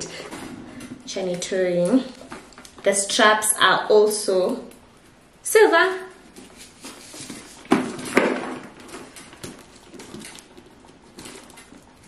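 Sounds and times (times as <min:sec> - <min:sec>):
soft rustling: 0:05.9 - 0:12.0.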